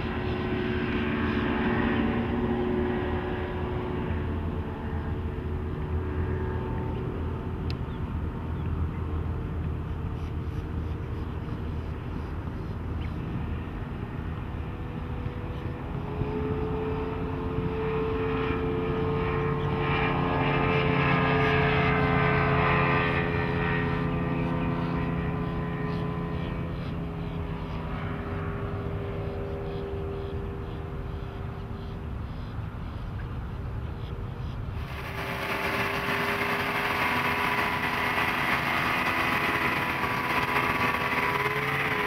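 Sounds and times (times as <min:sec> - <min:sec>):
outboard engine drone: 0:00.0 - 0:42.0.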